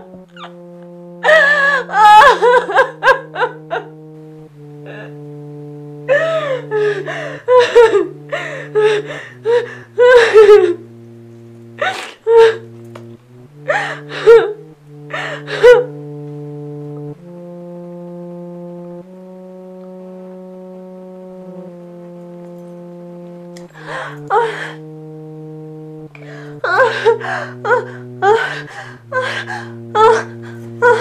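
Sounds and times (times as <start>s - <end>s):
background music notes: 0.0s - 31.0s
woman crying: 1.2s - 4.0s, 4.9s - 5.2s, 6.1s - 10.8s, 11.8s - 12.7s, 13.6s - 15.9s, 23.8s - 24.8s, 26.3s - 31.0s.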